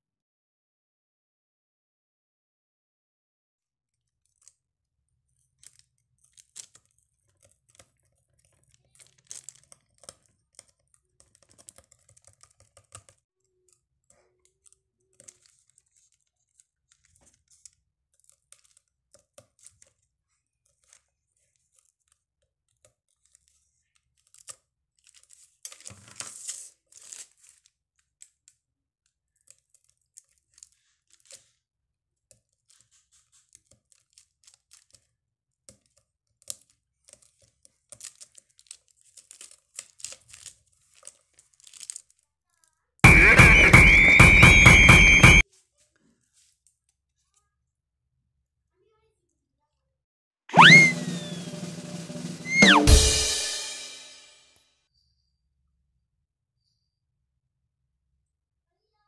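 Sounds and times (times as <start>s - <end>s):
candy crunching: 4.0s - 22.2s, 35.8s - 42.3s
needle picking at brittle candy: 5.2s - 28.6s.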